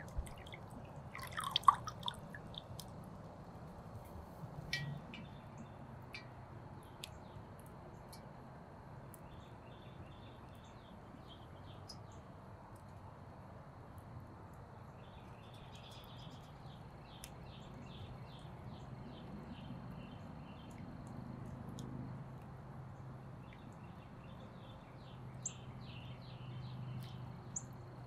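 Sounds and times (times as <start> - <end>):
bird chirping: 14.9 - 20.8, 23.4 - 27.8.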